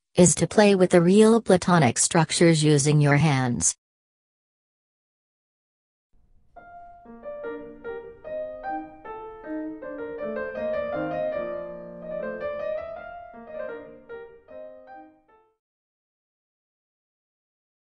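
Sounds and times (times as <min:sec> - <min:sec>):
piano music: 0:06.5 - 0:15.6.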